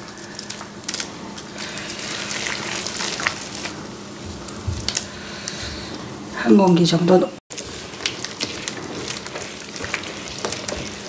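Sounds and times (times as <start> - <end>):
wet crackly mixing: 0.0 - 11.0.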